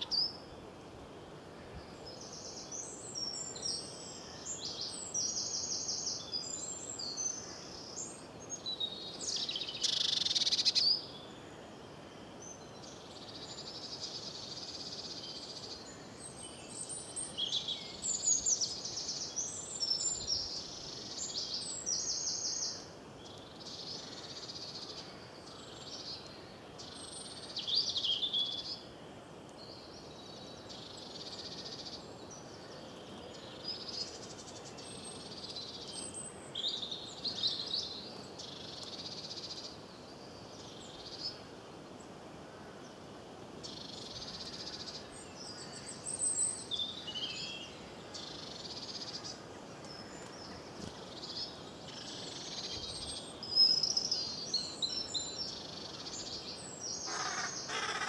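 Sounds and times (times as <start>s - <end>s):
low background hiss: 0.0s - 58.0s
songbirds singing and chirping: 0.0s - 58.0s.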